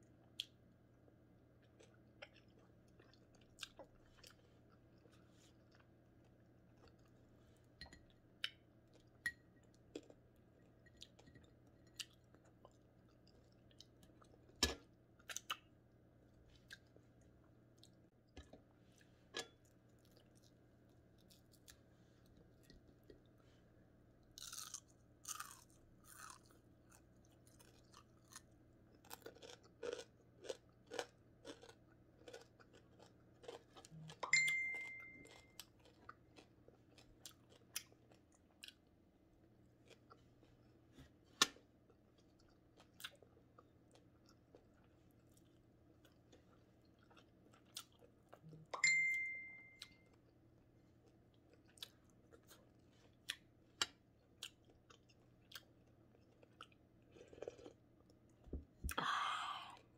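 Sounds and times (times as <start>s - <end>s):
chewing crispy fish: 1.5s - 7.8s, 16.4s - 23.4s, 24.2s - 34.3s, 35.2s - 48.8s, 49.8s - 58.4s.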